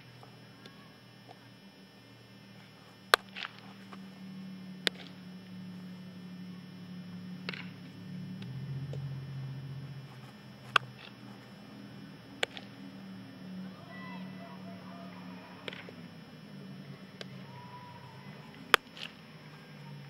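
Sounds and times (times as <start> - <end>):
low hum: 0.0 - 20.0
baseball popping into mitt: 3.1 - 3.6, 4.8 - 5.2, 7.4 - 7.7, 12.4 - 12.7
faint cracks: 7.4 - 9.0, 12.3 - 12.9, 15.4 - 20.0.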